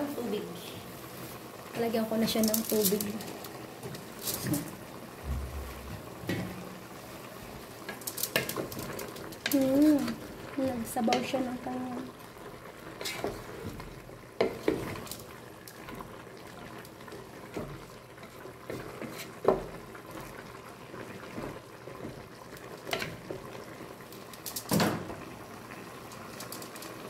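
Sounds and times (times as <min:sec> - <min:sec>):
food simmering and bubbling in pot: 0:00.0 - 0:27.0
wooden spoon scraping metal pot: 0:02.2 - 0:04.8, 0:12.9 - 0:15.2, 0:17.5 - 0:19.7.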